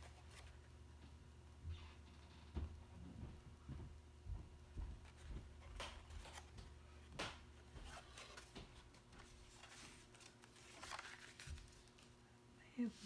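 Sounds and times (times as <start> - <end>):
cardstock rustling and crackling: 5.0 - 12.2.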